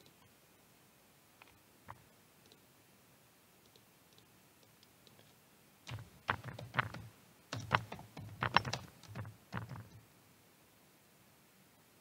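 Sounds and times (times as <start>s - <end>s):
computer keyboard typing: 5.9s - 10.0s.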